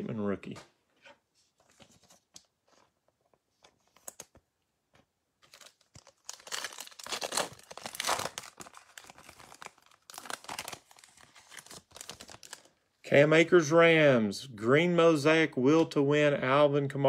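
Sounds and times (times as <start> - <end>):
foil wrapper tearing and crinkling: 5.4 - 12.7.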